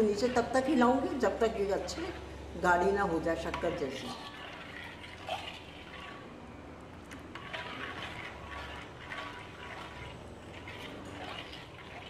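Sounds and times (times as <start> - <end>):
spoon stirring syrup in a pan: 0.0 - 6.3, 7.0 - 12.0.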